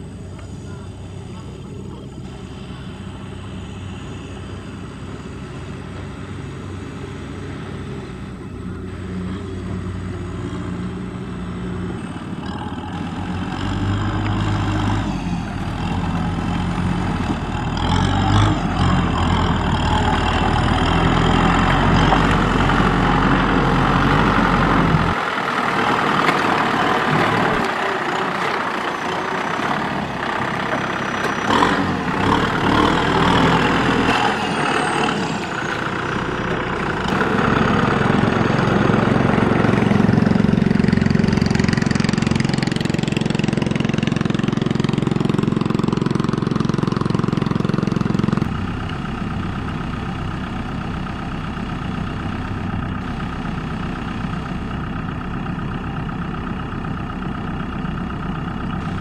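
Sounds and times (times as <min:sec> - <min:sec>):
tractor churning through mud: 0:00.0 - 0:59.0
tractor diesel engine under load: 0:00.0 - 0:59.0.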